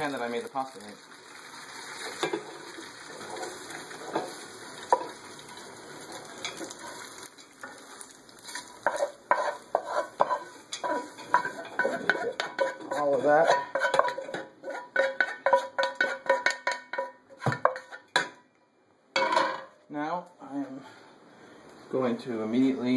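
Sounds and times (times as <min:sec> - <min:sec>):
pasta sizzling in a frying pan: 0:00.0 - 0:18.2
pasta scraping into a metal pot: 0:01.8 - 0:04.4, 0:08.4 - 0:17.1.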